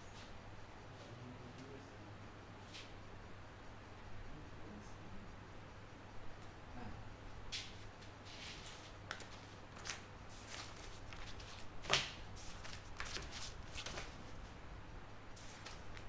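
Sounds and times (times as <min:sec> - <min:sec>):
low steady hum: 0:00.0 - 0:16.0
soft rustling: 0:07.5 - 0:14.6, 0:15.4 - 0:16.0.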